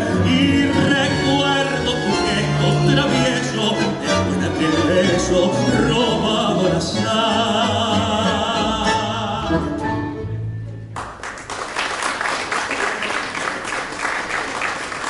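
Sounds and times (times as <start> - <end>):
man singing with vibrato: 0.0 - 10.3
tango orchestra with strings: 0.0 - 11.1
audience applause: 11.0 - 15.0.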